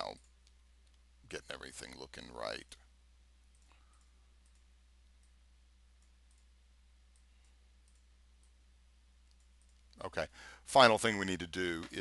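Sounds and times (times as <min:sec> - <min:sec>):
low electrical hum: 0:00.0 - 0:12.0
computer mouse clicks: 0:03.5 - 0:05.4, 0:06.0 - 0:06.5, 0:07.1 - 0:08.6, 0:09.2 - 0:10.0.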